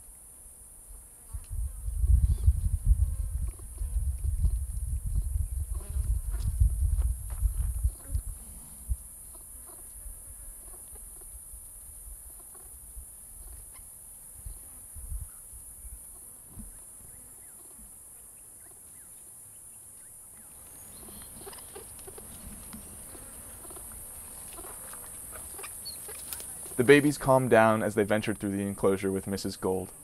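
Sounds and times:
high-pitched insect chorus: 0:00.8 - 0:29.8
faint rustles: 0:20.5 - 0:27.1.

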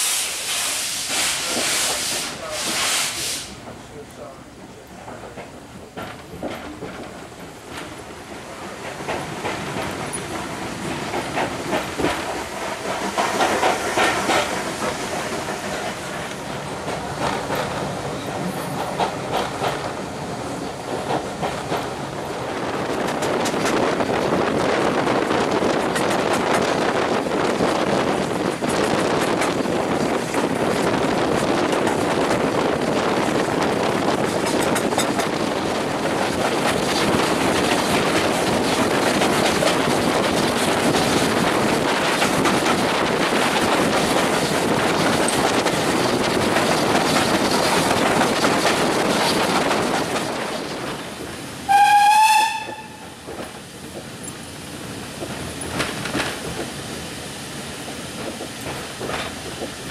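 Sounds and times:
train wind and wheels noise: 0:00.0 - 0:59.9
steam whistle toot: 0:51.7 - 0:53.1.

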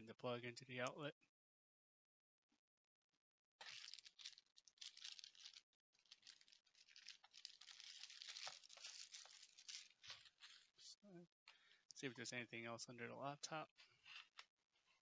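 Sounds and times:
packaging crinkling: 0:03.6 - 0:10.8.

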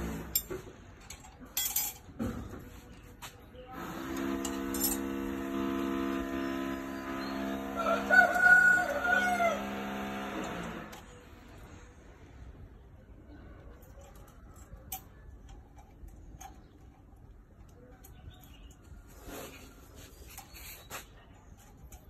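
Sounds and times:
rooster crowing: 0:07.4 - 0:10.4.

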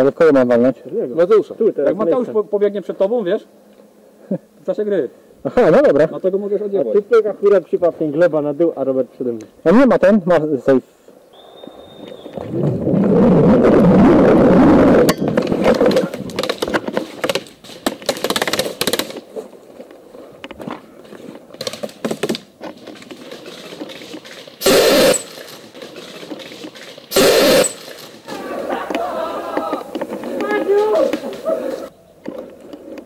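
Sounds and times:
wind and jostling rumble: 0:10.1 - 0:24.6
gear clicking and rustling: 0:15.2 - 0:28.4
loud hissing bursts: 0:24.6 - 0:25.5, 0:27.1 - 0:28.7.

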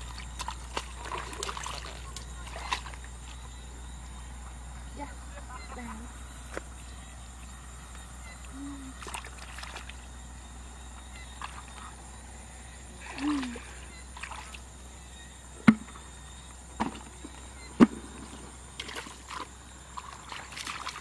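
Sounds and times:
muddy water sloshing and splashing: 0:00.0 - 0:04.8, 0:08.3 - 0:14.8, 0:15.6 - 0:21.0
sharp knocks: 0:15.6 - 0:15.9.

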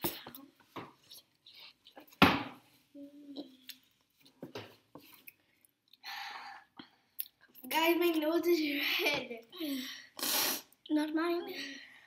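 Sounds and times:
hissing intake of breath: 0:10.0 - 0:10.8.

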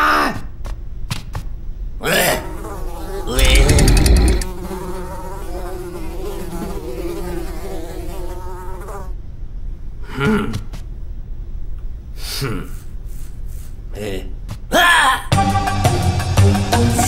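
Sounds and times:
cartoon flies buzzing: 0:02.4 - 0:09.0
rattling burst: 0:03.4 - 0:04.5.

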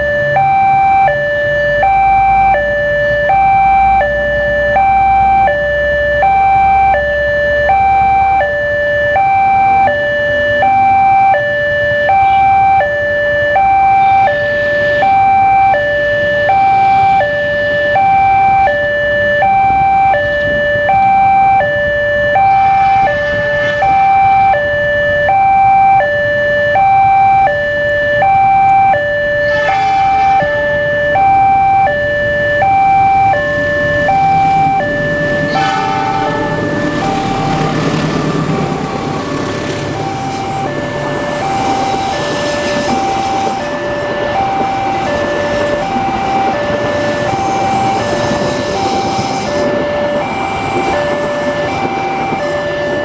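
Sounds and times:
level crossing two-tone alarm: 0:00.0 - 0:53.0
train rumbling past: 0:33.5 - 0:53.0.

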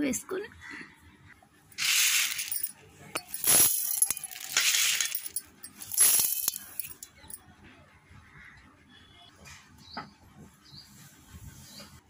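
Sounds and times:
grains rattling into steel jar: 0:01.8 - 0:07.0
small clinks: 0:01.8 - 0:07.4.

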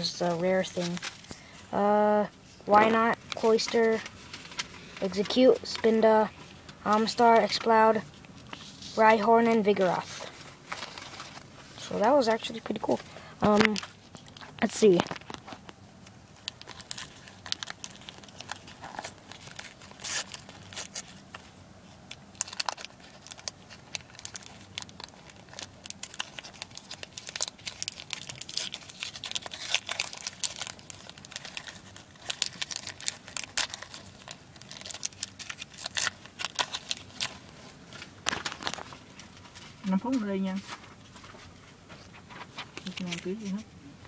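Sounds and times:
wrapper tearing and crinkling: 0:12.2 - 0:15.7, 0:16.4 - 0:21.4, 0:22.1 - 0:40.0.

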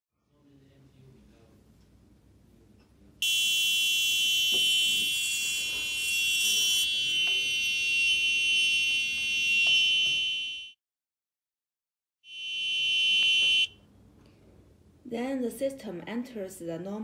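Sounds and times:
high-pitched alarm buzzer: 0:03.2 - 0:10.8, 0:12.3 - 0:13.8.

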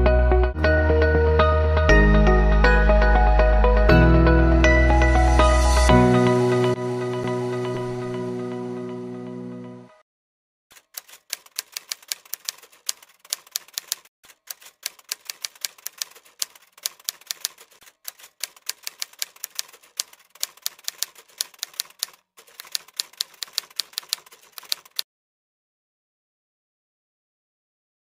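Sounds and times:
typewriter key clicks: 0:10.8 - 0:25.0.

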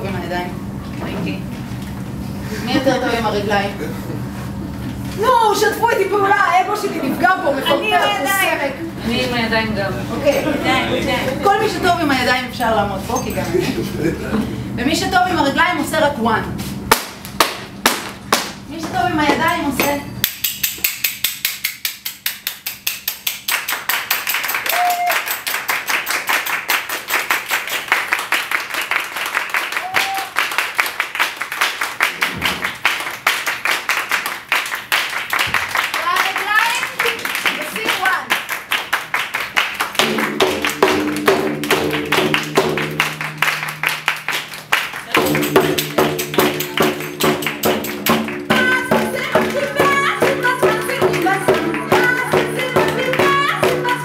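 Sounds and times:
group clapping in rhythm: 0:16.9 - 0:18.6, 0:20.2 - 0:54.0
drone of held tones: 0:40.0 - 0:49.2.

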